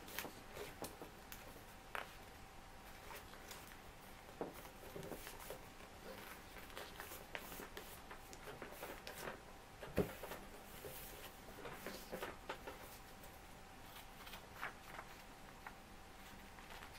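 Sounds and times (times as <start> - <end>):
paper being folded and creased: 2.8 - 9.4, 13.8 - 16.9.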